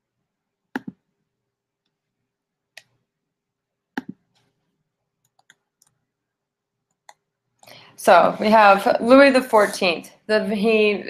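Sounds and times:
computer mouse clicking: 0.8 - 1.0, 5.2 - 6.0.

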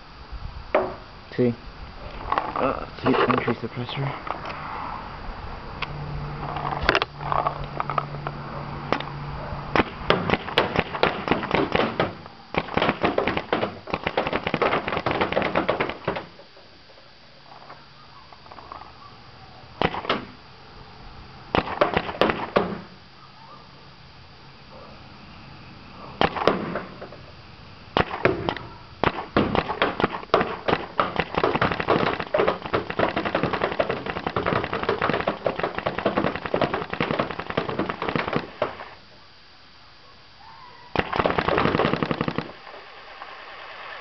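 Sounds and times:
paintball marker firing rapidly: 9.8 - 16.4, 19.8 - 20.4, 21.5 - 22.9, 26.2 - 27.0, 28.0 - 39.0, 41.0 - 42.6.

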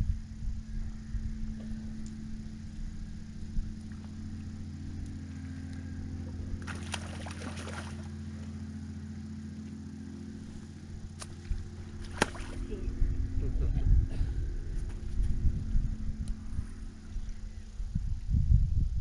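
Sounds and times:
low engine-like hum: 0.0 - 19.0
crackling splashing water: 6.6 - 8.5, 11.2 - 12.8.

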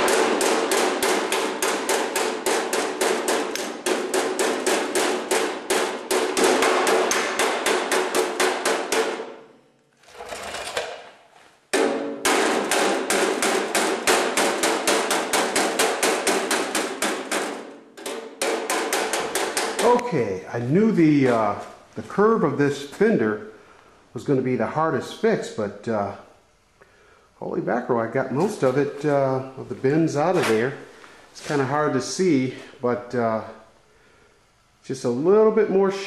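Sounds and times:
hammer striking steel: 0.0 - 9.6, 11.7 - 20.2.

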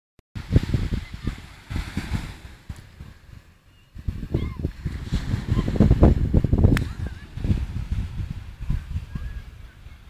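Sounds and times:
wind buffeting microphone: 0.4 - 10.0.

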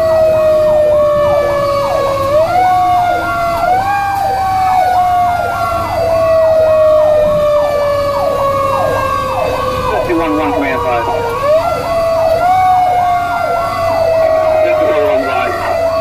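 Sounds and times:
engine and road rumble: 0.0 - 16.0
rapid yelp siren: 0.0 - 16.0
steady siren tone: 0.0 - 16.0.

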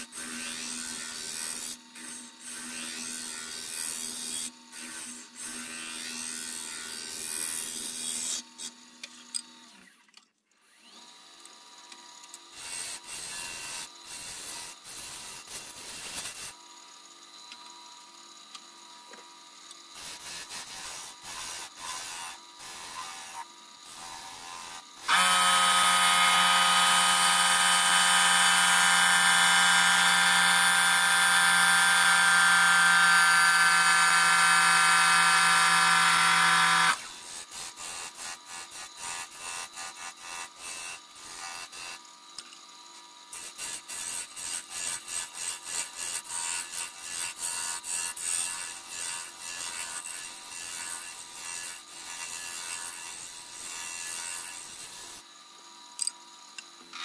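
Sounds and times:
turning tool cutting wood: 10.7 - 16.6, 20.0 - 42.1, 43.3 - 55.2
wood lathe running: 24.0 - 37.0.

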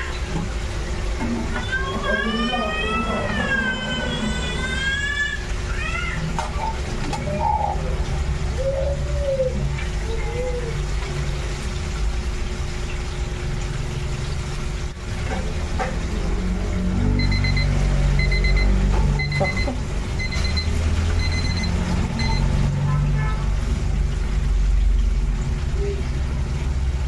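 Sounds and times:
kitchen timer beeping: 17.1 - 22.7.

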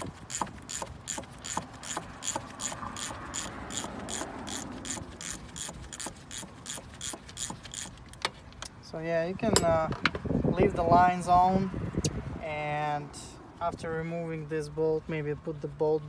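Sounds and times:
socket ratchet clicking: 0.0 - 8.7.

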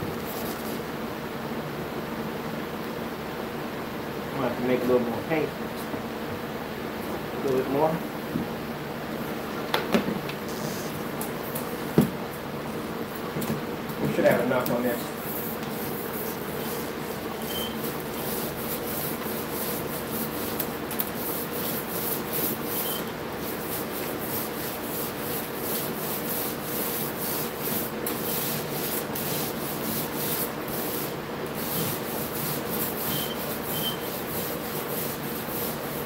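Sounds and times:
paint roller rubbing: 14.2 - 36.0.

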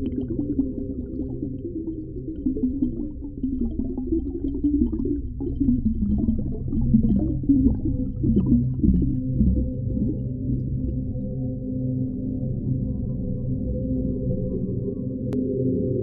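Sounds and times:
small bubbling crackles: 0.0 - 11.2
underwater rumble: 0.0 - 16.0.

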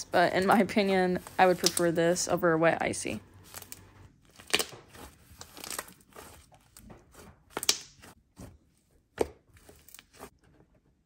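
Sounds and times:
slime crackling and popping: 3.5 - 8.1.

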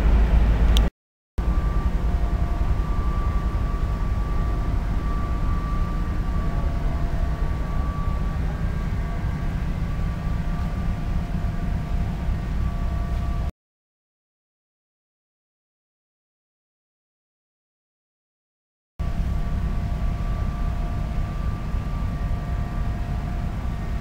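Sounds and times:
train wheels rumbling on rails: 0.0 - 13.5
faint high whine: 1.4 - 13.5, 19.0 - 24.0.

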